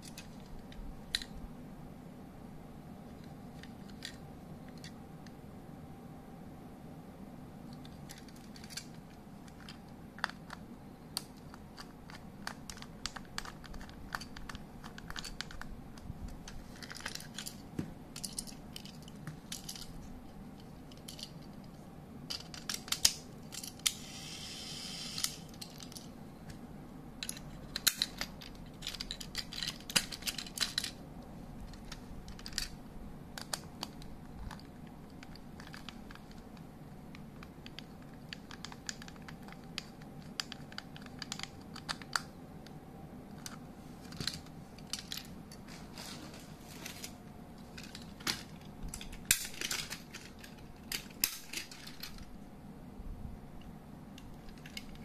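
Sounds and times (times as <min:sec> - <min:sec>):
scraping rustle: 0:45.6 - 0:48.2.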